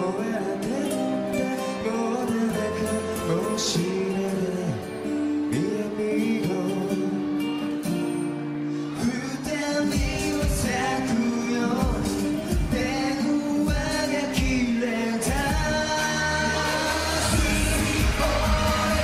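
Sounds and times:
pop backing track: 0.0 - 19.0
men singing into microphones: 9.0 - 19.0
steady drum beat: 16.6 - 19.0.

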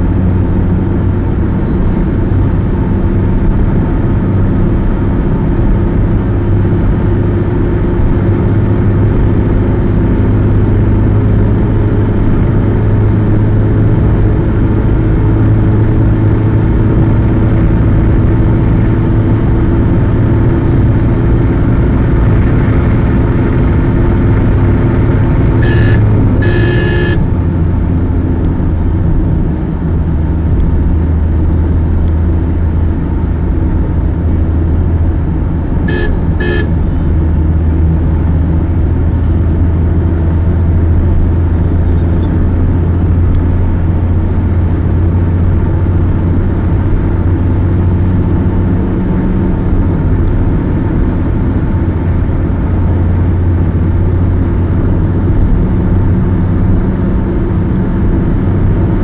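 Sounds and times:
car engine drone and road noise: 0.0 - 59.0
car horn toots: 25.4 - 27.4, 35.9 - 37.2.

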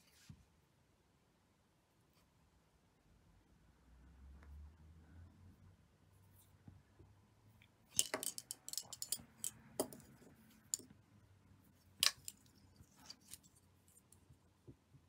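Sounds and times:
thread and shuttles clicking: 7.9 - 10.9, 12.0 - 14.3.

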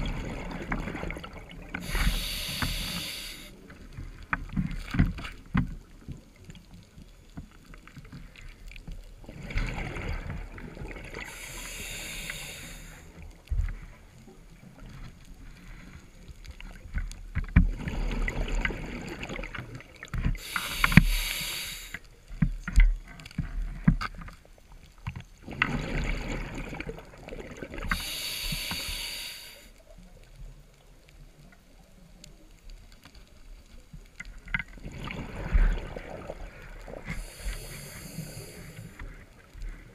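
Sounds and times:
diver breathing through regulator: 1.8 - 3.6, 11.2 - 13.2, 20.4 - 22.1, 27.8 - 29.7, 37.0 - 39.2.

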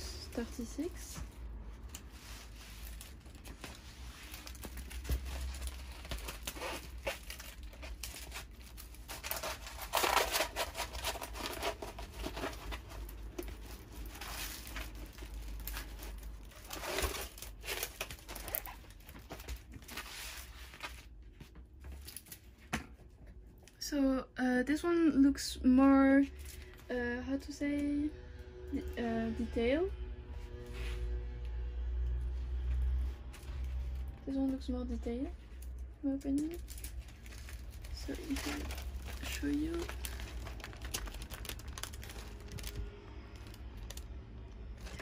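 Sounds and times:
plastic film crinkling: 1.8 - 22.6, 35.5 - 45.0.

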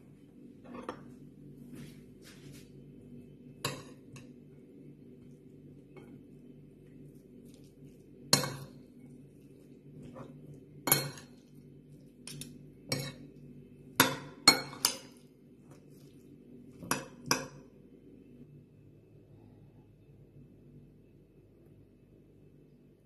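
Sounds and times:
cutlery clinking against bowl: 12.2 - 13.3.

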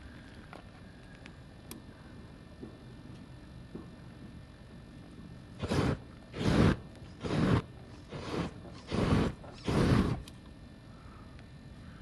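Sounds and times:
flamethrower whoosh bursts: 5.6 - 10.2.

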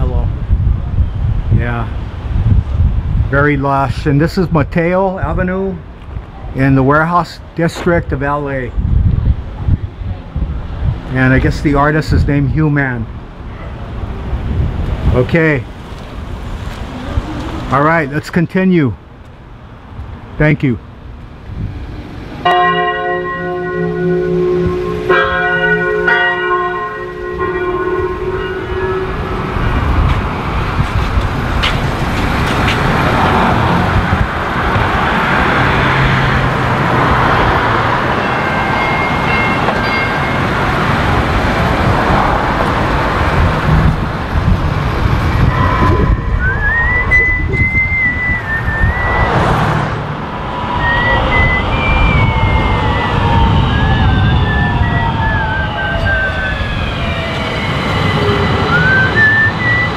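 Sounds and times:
traffic rumble: 0.0 - 59.9
falling tones: 22.4 - 30.1, 44.8 - 59.9
high wavering tone: 22.5 - 30.1, 38.1 - 40.7, 45.2 - 49.4, 50.4 - 59.9.

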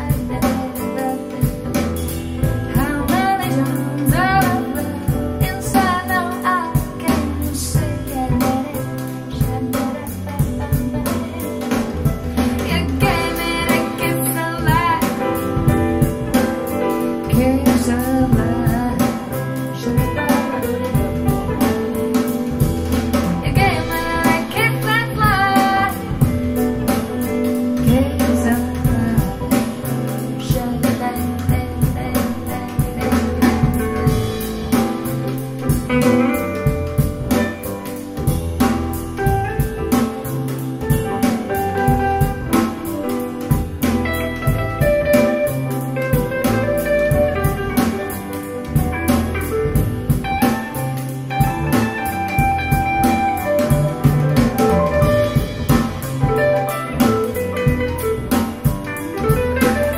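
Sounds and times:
woman singing: 0.0 - 38.0
drums: 0.0 - 59.9
guitar: 0.0 - 59.9.

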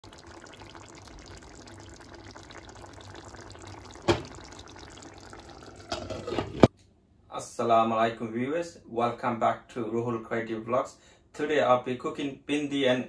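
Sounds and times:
curry bubbling in a pan: 0.0 - 6.7.

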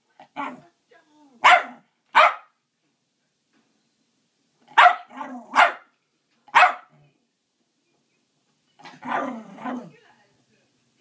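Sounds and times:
small dog barking: 1.4 - 2.6, 4.7 - 5.9, 6.5 - 7.0, 9.0 - 9.9.

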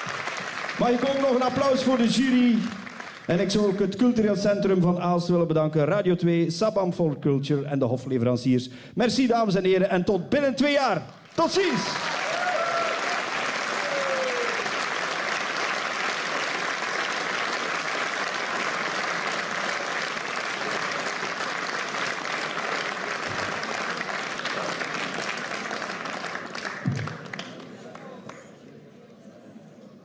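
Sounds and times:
audience applauding: 0.0 - 4.0, 11.1 - 28.5.

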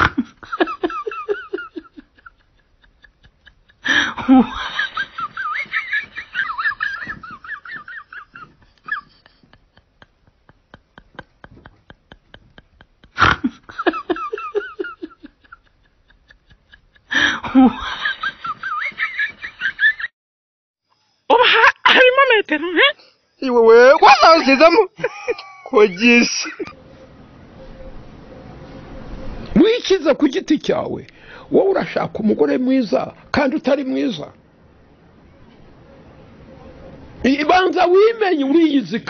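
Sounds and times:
person laughing: 0.0 - 20.1, 24.0 - 26.8.

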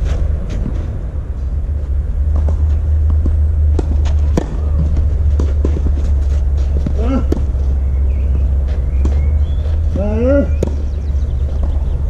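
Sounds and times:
low rumble: 0.0 - 12.0
tennis ball hits and bounces: 2.3 - 10.0, 10.6 - 12.0.

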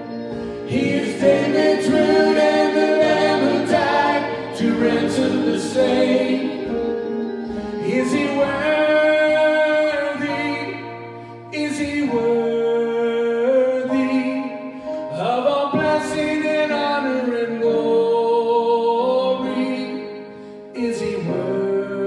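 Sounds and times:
quiet guitar accompaniment: 0.0 - 12.8
voices singing in harmony: 0.0 - 20.2.

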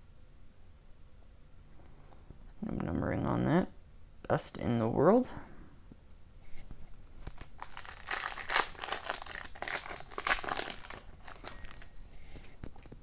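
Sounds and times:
foil wrapper crinkling: 7.2 - 12.0.

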